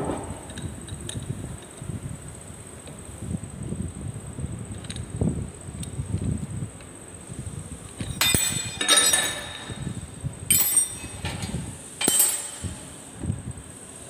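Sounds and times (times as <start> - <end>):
metallic clinks of steel tools: 8.0 - 13.0.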